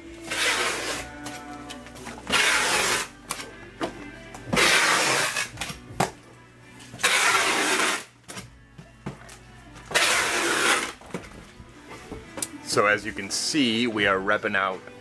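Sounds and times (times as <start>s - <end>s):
background music: 0.0s - 15.0s
packing tape tearing: 0.2s - 3.5s, 4.6s - 5.8s, 7.0s - 8.5s, 9.8s - 11.3s.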